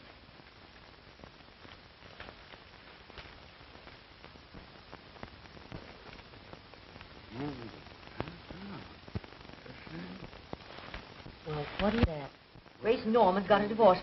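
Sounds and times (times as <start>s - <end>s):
film soundtrack hiss and clicks: 0.0s - 14.0s
murmured voice: 7.3s - 9.0s, 9.6s - 10.4s.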